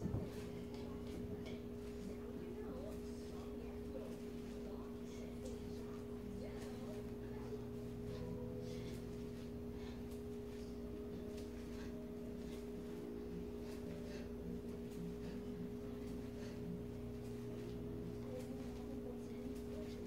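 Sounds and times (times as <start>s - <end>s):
steady two-pitch hum: 0.0s - 20.0s
footsteps on tiled floor: 16.0s - 20.0s.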